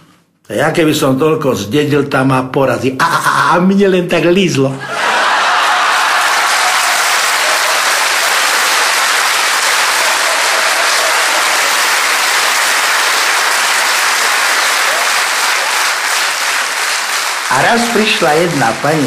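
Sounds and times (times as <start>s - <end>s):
audience applauding: 4.8s - 19.0s.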